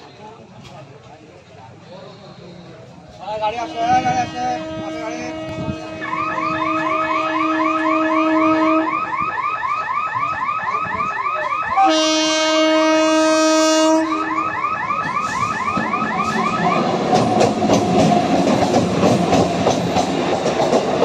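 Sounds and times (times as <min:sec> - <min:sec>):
shrill train horn blast: 0:03.5 - 0:09.3, 0:11.7 - 0:15.6
long steady horn note: 0:03.6 - 0:09.3, 0:11.8 - 0:14.5.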